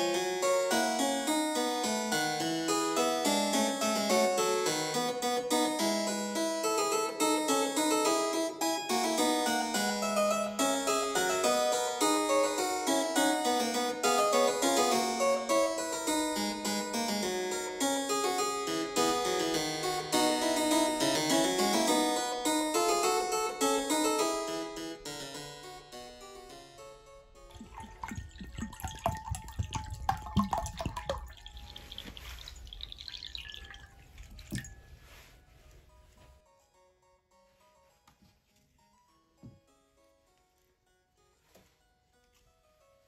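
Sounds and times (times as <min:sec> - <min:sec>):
harpsichord music: 0:00.0 - 0:32.3
water splashing and dripping in basin: 0:27.5 - 0:34.8.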